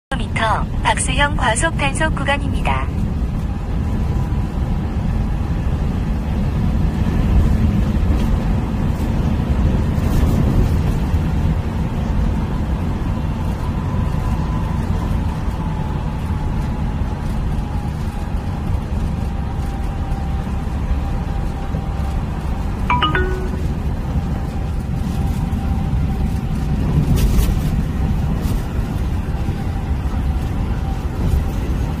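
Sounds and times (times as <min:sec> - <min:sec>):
car road and tyre rumble: 0:00.3 - 0:22.9, 0:23.6 - 0:32.0
brief ringing sound: 0:22.9 - 0:24.0.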